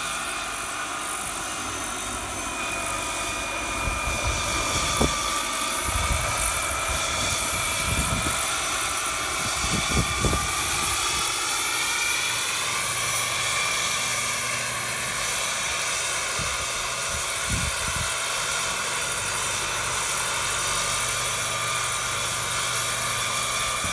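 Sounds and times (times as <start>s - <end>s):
model helicopter turbine whining: 0.0s - 23.9s
rotor whir: 0.0s - 23.9s.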